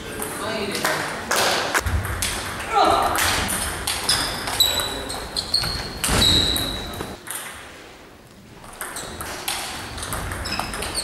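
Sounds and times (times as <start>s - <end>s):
table tennis balls clicking: 8.6s - 11.0s.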